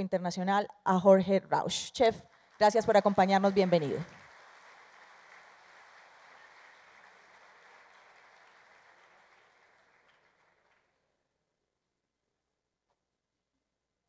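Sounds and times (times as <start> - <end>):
faint audience applause: 2.2 - 11.1.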